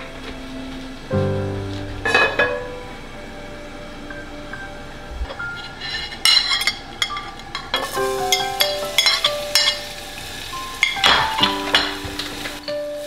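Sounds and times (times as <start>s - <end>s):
piano-like background music: 0.0s - 13.0s.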